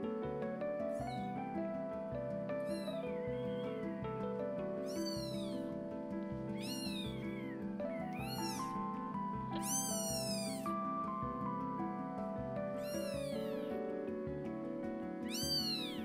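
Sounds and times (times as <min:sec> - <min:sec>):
kitten mewing: 0:02.6 - 0:04.0, 0:04.8 - 0:05.8, 0:06.5 - 0:08.9, 0:09.6 - 0:10.8, 0:12.7 - 0:13.9, 0:15.2 - 0:16.0.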